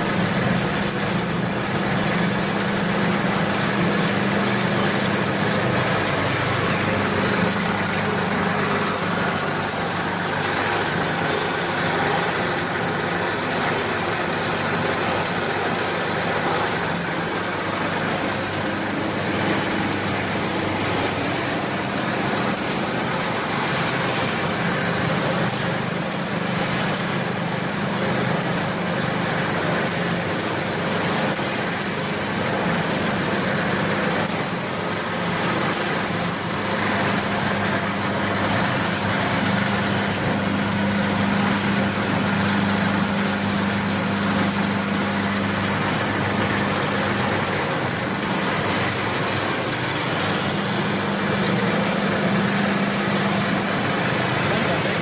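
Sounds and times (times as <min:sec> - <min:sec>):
packaging machine hum: 0:00.0 - 0:55.0
sharp machine clicks: 0:00.2 - 0:27.6.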